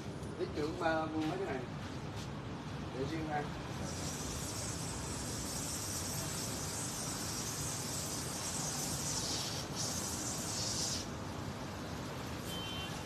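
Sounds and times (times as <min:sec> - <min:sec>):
water spraying: 0:03.7 - 0:11.3.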